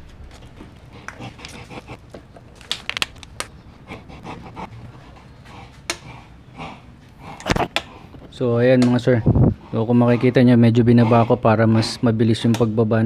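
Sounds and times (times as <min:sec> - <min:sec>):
plastic bottle crackling: 0:01.4 - 0:03.7.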